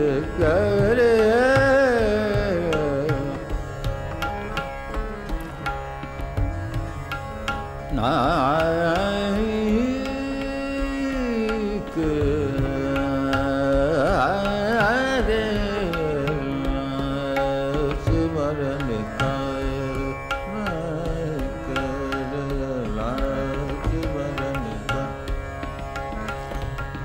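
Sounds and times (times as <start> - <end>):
man singing melodic line: 0.0 - 3.8, 7.9 - 25.4
tabla strokes: 0.0 - 27.0
tanpura drone: 0.0 - 27.0.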